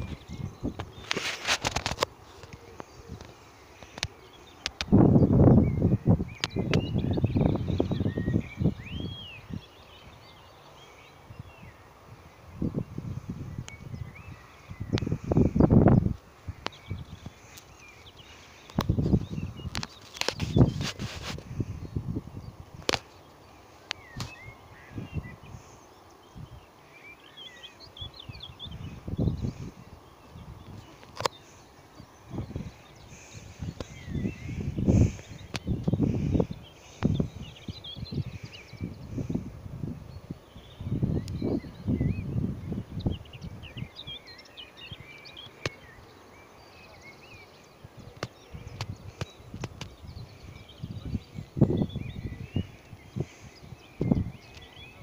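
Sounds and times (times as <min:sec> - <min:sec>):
wind rumbling on microphone: 0:00.0 - 0:26.8, 0:27.7 - 0:46.7, 0:47.3 - 0:55.0
songbirds twittering: 0:00.0 - 0:55.0
wild birds singing: 0:00.0 - 0:55.0
sharp clicks: 0:00.8 - 0:04.9.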